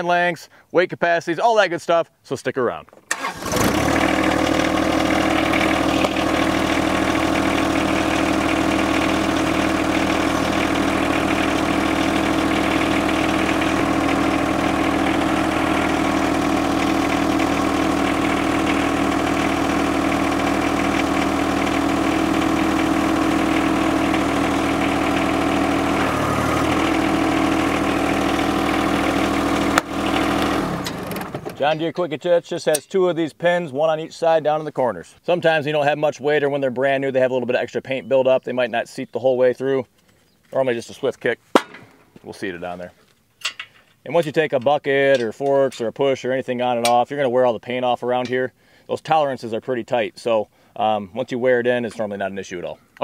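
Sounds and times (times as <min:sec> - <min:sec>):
tractor diesel engine idling: 0:03.1 - 0:32.0.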